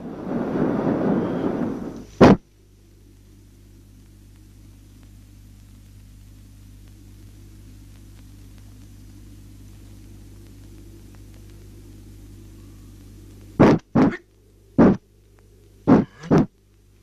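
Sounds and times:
loud noise burst: 0:00.0 - 0:02.4, 0:13.6 - 0:14.2, 0:14.8 - 0:15.0, 0:15.8 - 0:16.5
electrical hum with hiss: 0:00.0 - 0:17.0.

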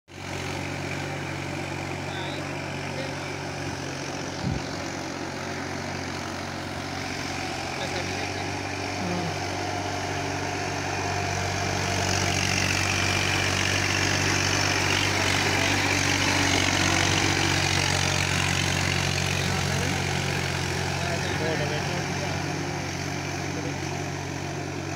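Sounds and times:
tractor diesel engine running: 0:00.1 - 0:24.9
wheels churning through mud: 0:00.2 - 0:24.9.

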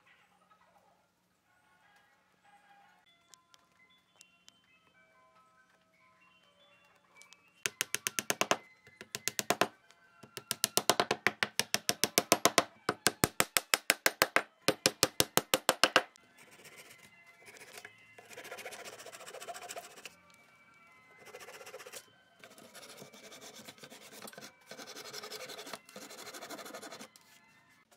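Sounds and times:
rapid sharp wooden knocks: 0:07.7 - 0:16.1.

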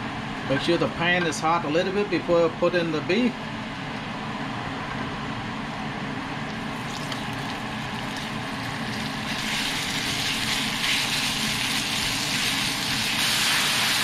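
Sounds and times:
beef sizzling in a pan: 0:06.9 - 0:14.0.

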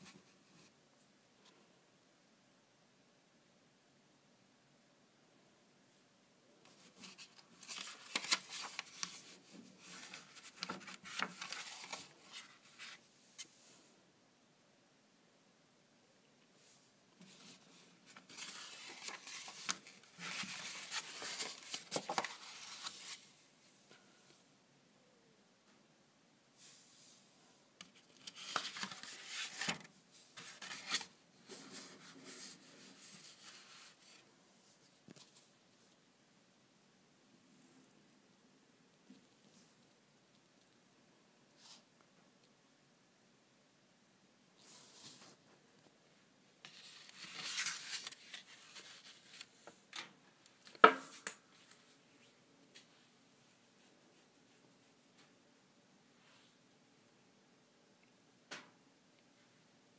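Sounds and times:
paper rustling and rubbing: 0:06.7 - 0:13.5, 0:17.2 - 0:23.4, 0:27.9 - 0:34.2, 0:46.6 - 0:49.7.

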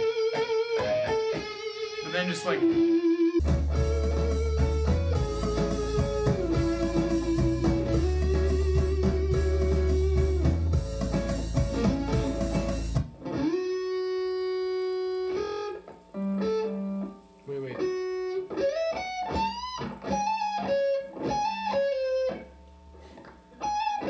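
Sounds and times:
backing track with bass: 0:00.0 - 0:15.5
electric guitar lead solo: 0:00.0 - 0:24.0.

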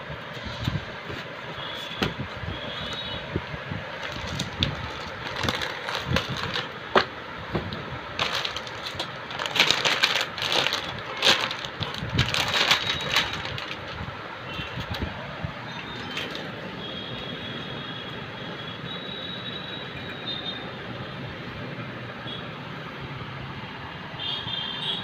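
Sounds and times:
plastic bag crinkling: 0:04.0 - 0:07.0, 0:08.1 - 0:14.0.

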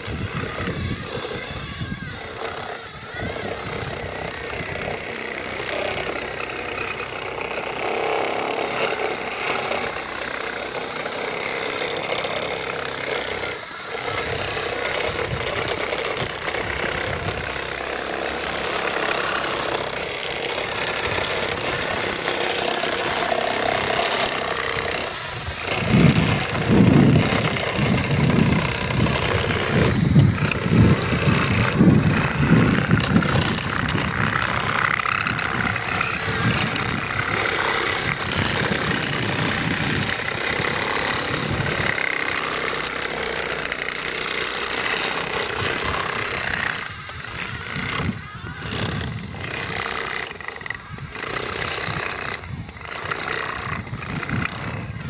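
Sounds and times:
model engine drone: 0:00.0 - 0:55.0
uneven low rumbling: 0:13.2 - 0:43.5.

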